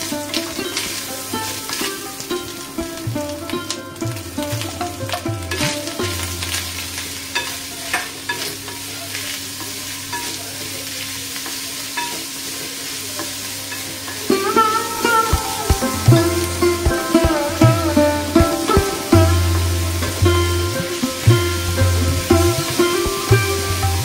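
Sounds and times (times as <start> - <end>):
food sizzling lightly: 0.0 - 24.0
background music: 14.3 - 24.0.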